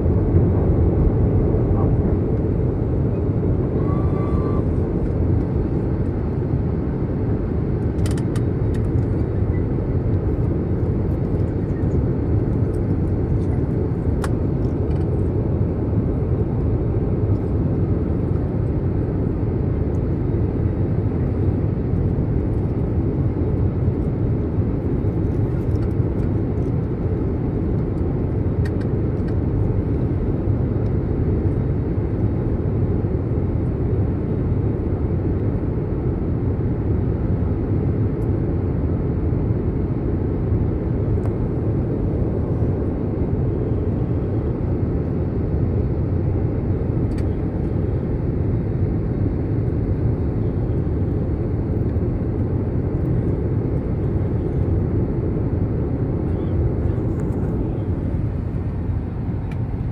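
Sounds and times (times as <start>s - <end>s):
airliner cabin engine rumble: 0.0s - 59.9s.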